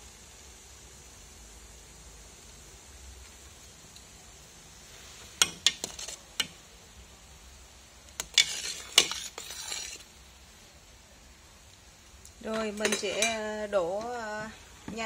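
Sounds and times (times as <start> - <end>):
utensil scraping pot: 5.4 - 6.6, 8.2 - 10.1, 12.4 - 13.6.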